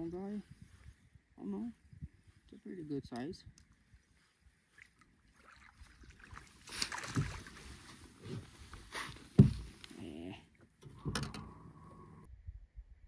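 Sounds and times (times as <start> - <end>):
fish splashing at surface: 5.3 - 7.7
dull knocks: 9.4 - 9.8.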